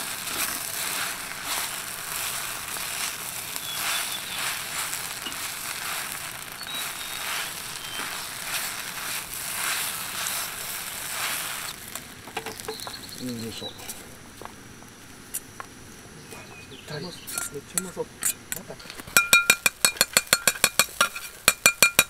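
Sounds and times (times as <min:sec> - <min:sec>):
rice sizzling in a wok: 0:00.0 - 0:22.0
metal ladle scraping wok: 0:17.3 - 0:19.3, 0:19.9 - 0:21.5.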